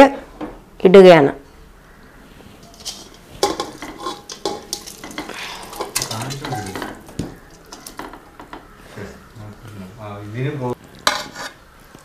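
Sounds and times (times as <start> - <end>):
colander clinking on pot rim: 2.6 - 8.6.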